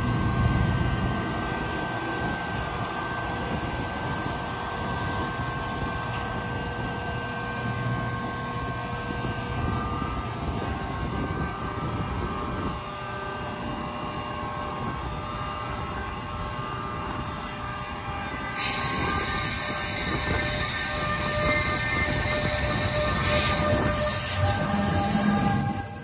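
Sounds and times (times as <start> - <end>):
train wheels rumbling on rail: 0.0 - 26.0
rail noise hiss: 17.9 - 26.0.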